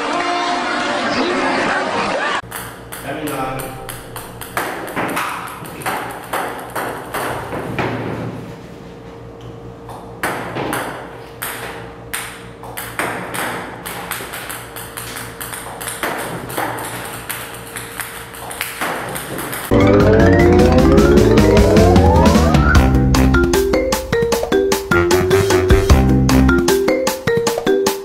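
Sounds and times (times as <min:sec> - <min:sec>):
ping-pong balls bouncing on table: 0:02.4 - 0:07.8, 0:09.9 - 0:22.5, 0:26.7 - 0:28.0.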